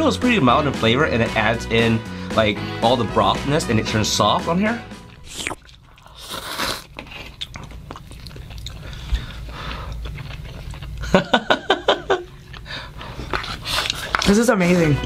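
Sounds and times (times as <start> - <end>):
noodles being slurped: 5.0 - 11.2, 12.1 - 15.0
chewing: 5.0 - 15.0.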